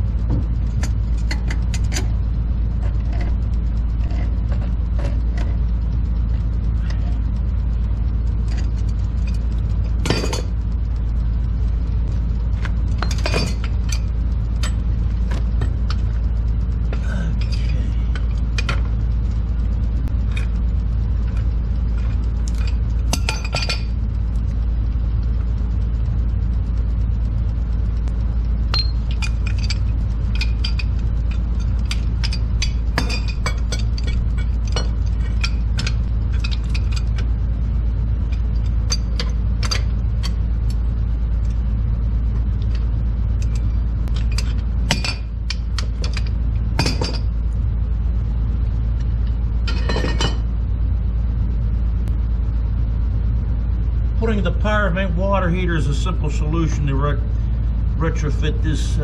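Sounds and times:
steady low rumble: 0.0s - 59.0s
metal tools clinking and tapping: 13.0s - 14.8s, 17.4s - 17.9s, 22.5s - 23.9s, 28.7s - 37.2s, 38.3s - 40.4s, 43.4s - 47.3s, 49.7s - 50.4s.

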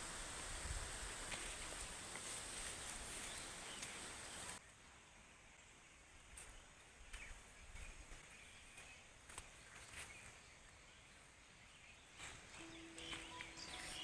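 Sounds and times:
leaves and stems rustling: 0.0s - 4.8s, 12.0s - 14.0s
faint rural ambience: 0.0s - 14.0s.

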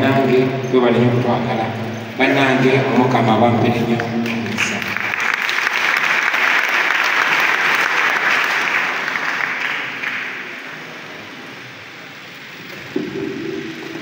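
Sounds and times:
congregation applauding: 3.7s - 11.1s.

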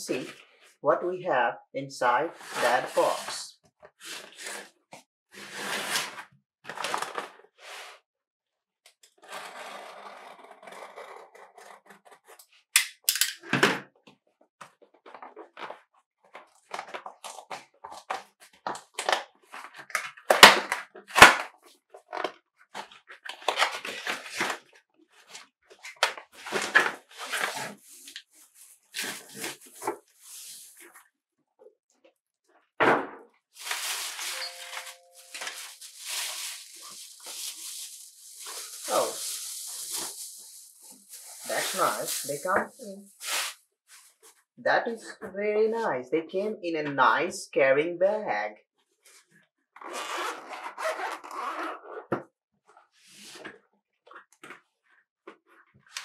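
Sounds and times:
cardboard box being opened: 33.6s - 40.2s.

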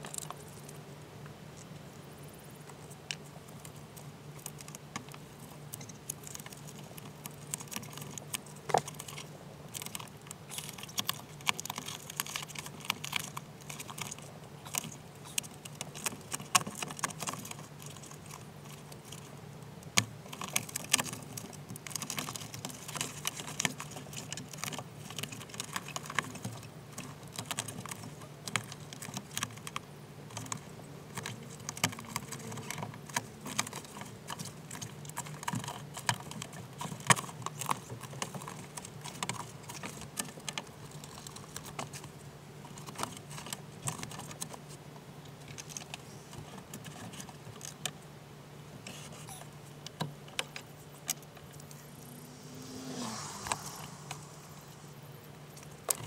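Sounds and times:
steady low hum: 50.7s - 55.9s.

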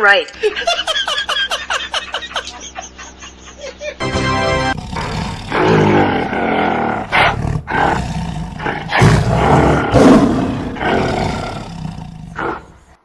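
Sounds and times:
animal roars and growls: 4.7s - 13.0s.

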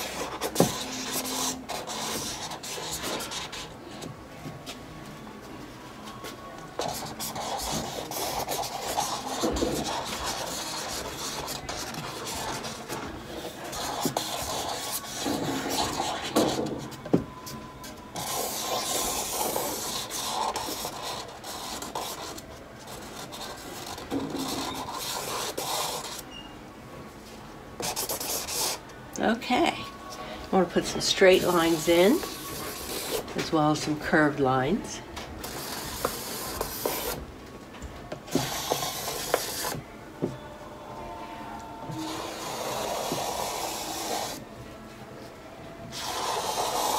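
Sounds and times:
charcoal scratching on canvas: 0.0s - 3.7s, 6.8s - 16.6s, 18.2s - 26.3s, 31.3s - 33.3s, 35.4s - 37.2s, 38.4s - 39.8s, 42.0s - 44.4s, 45.9s - 46.9s.

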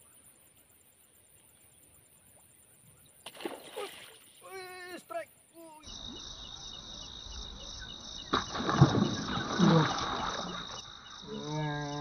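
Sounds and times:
insects chirring: 0.0s - 12.0s.

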